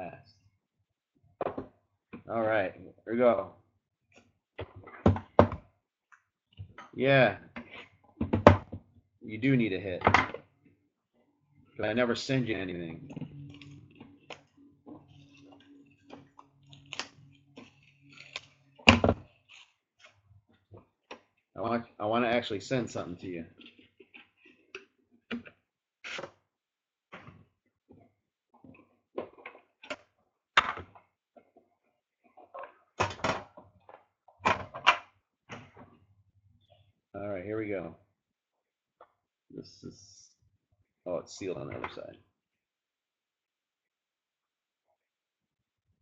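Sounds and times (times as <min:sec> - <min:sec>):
plastic shrink-wrap crinkling: 0:15.0 - 0:20.0.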